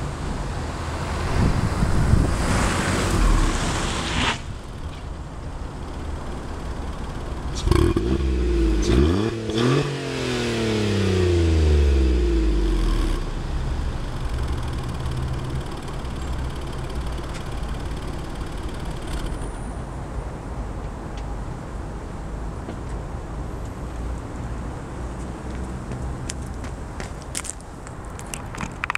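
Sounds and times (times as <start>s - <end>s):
car engine idling: 4.5s - 19.6s.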